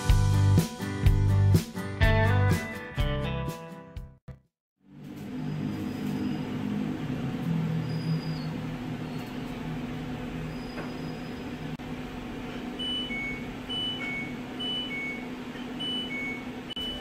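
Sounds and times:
alternating electronic alarm beeps: 0:12.8 - 0:17.0.

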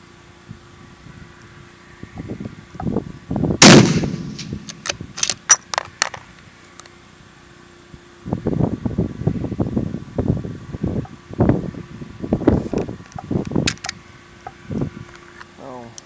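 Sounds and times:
rifle shot with echo: 0:03.6 - 0:05.0.

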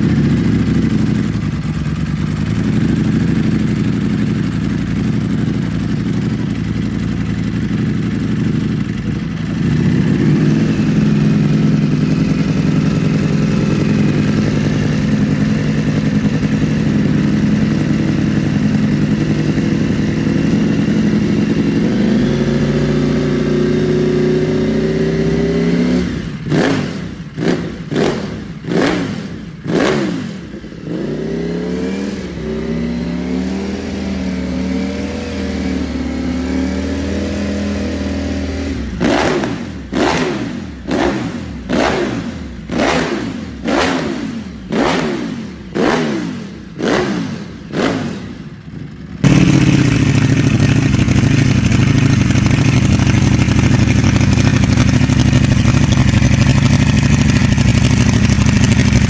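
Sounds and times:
motorcycle engine idling: 0:00.0 - 0:59.0
engine throttle blips: 0:49.2 - 0:59.0.

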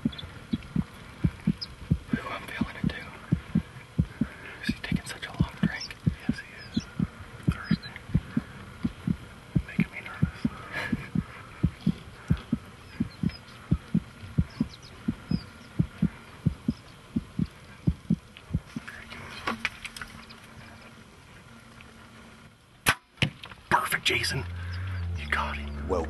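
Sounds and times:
heartbeat thumps: 0:00.0 - 0:18.9
low hum: 0:00.0 - 0:22.9, 0:23.6 - 0:26.0.

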